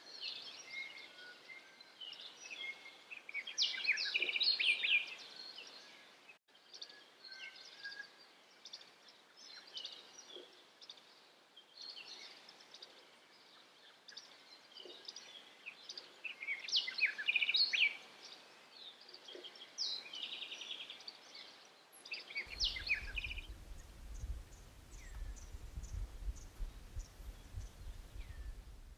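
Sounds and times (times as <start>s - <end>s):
birds chirping and trilling: 22.2s - 28.9s.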